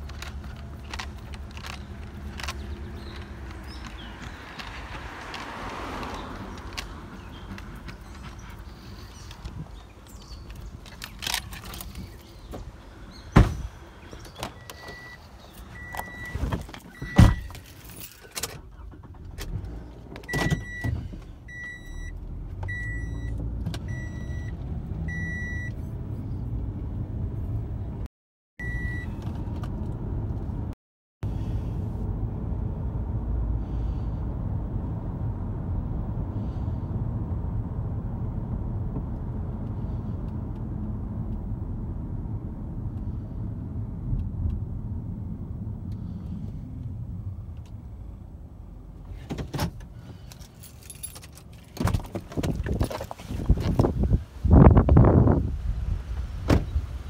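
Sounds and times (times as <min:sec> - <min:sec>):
car doors shutting: 0:10.3 - 0:17.6, 0:18.3 - 0:21.9, 0:49.1 - 0:50.3, 0:56.2 - 0:56.8
car warning chime beeping: 0:14.6 - 0:15.2, 0:15.8 - 0:16.4, 0:21.5 - 0:24.5, 0:25.1 - 0:25.8, 0:28.6 - 0:29.1.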